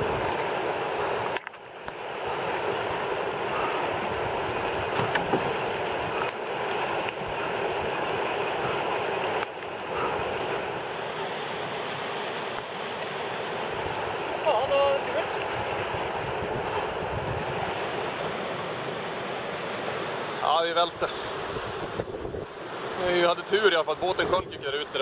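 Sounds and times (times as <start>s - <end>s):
river rapids rushing: 0.0s - 25.0s.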